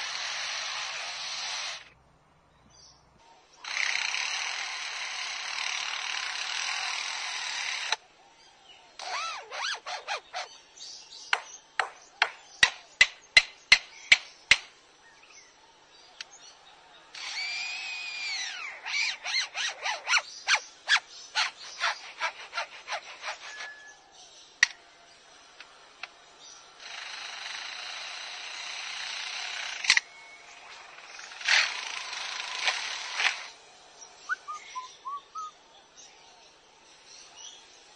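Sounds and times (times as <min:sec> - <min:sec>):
drill-like rasp: 0:00.0 - 0:01.9, 0:03.6 - 0:08.0, 0:09.0 - 0:10.5, 0:17.2 - 0:23.9, 0:26.8 - 0:30.0, 0:31.2 - 0:33.6
bird mimicking power-tool whine: 0:00.0 - 0:02.0, 0:02.7 - 0:37.9
bird mimicking sharp knocks: 0:11.3 - 0:14.7.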